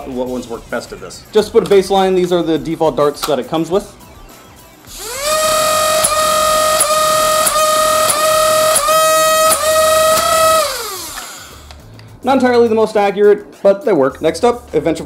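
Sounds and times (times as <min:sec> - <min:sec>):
flywheel motors whining: 0:04.9 - 0:11.8.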